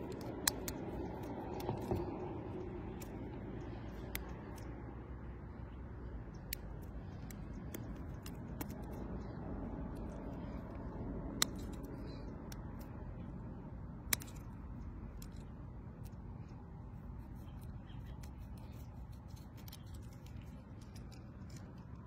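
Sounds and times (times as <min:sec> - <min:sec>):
plastic straw clicks and snips: 0:00.0 - 0:02.1, 0:06.3 - 0:12.9
steady low rumble: 0:00.0 - 0:22.0.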